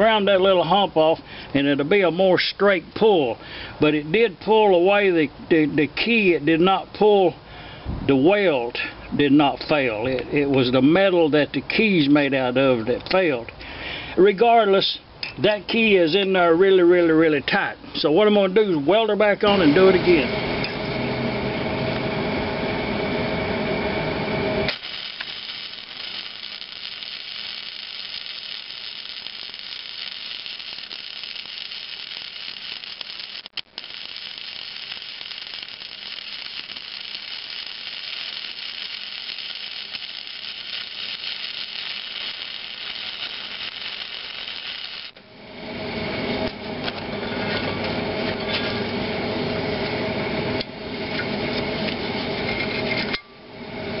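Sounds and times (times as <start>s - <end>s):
welder arc crackling and hissing: 0.0s - 4.0s, 18.7s - 20.4s, 24.5s - 45.3s
steady hum: 17.6s - 54.0s.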